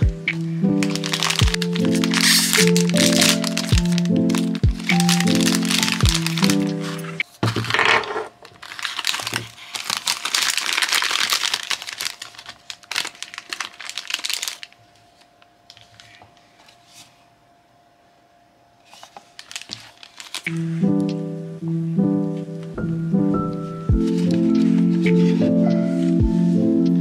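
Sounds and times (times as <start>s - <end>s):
plastic packaging crinkling: 0.0s - 17.1s, 18.8s - 21.3s.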